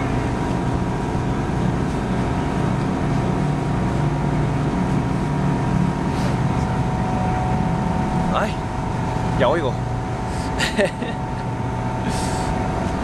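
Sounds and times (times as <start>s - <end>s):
engines droning: 0.0s - 13.0s
thin steady whine: 0.0s - 13.0s.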